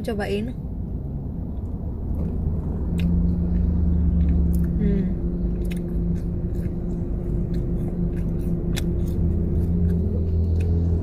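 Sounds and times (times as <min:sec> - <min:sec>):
car engine idling: 0:00.0 - 0:11.0
chewing clicks: 0:01.6 - 0:04.8, 0:05.4 - 0:11.0.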